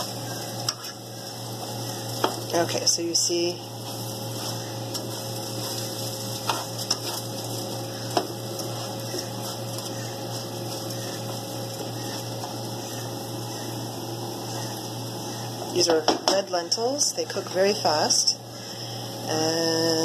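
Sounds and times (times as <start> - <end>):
utensil scraping pan: 0.0 - 16.4
vegetables sizzling in oil: 0.0 - 20.0.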